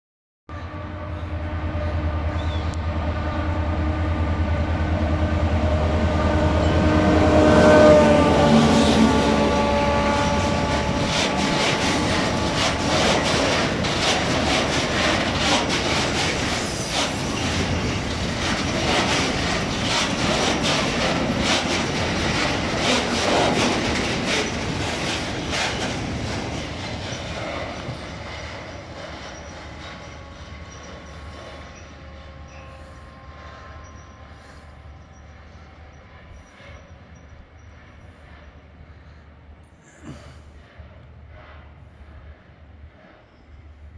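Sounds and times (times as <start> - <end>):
train wheels clacking over rail joints: 10.2 - 32.3.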